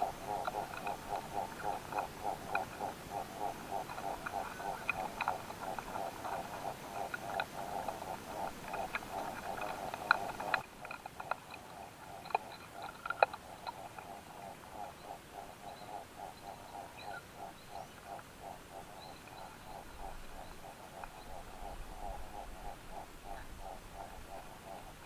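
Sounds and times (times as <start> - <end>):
bug legs clicking and scratching: 0.0 - 16.6.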